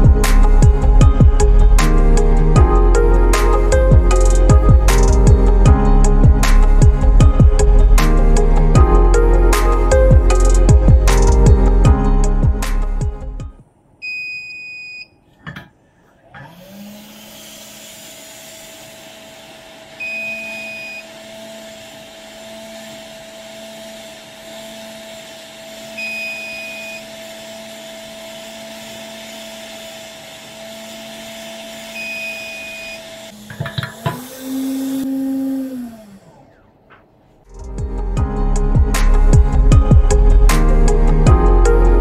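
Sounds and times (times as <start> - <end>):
hot-air gun blowing: 16.4 - 37.1.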